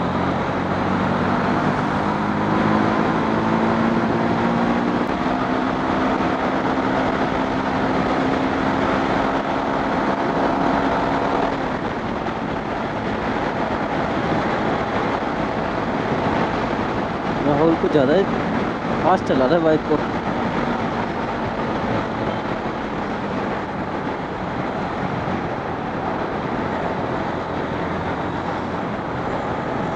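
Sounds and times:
wind noise: 0.0s - 29.9s.

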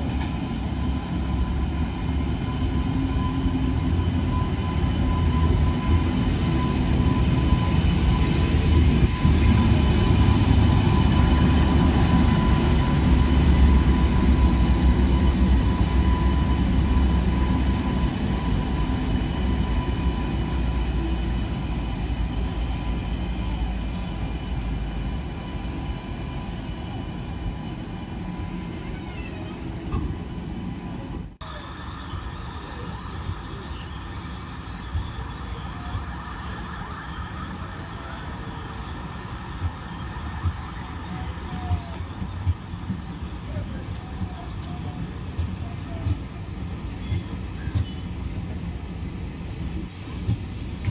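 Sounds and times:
electric locomotive rumble and whine: 0.0s - 50.9s
train coaches rolling over rails: 0.0s - 50.9s.

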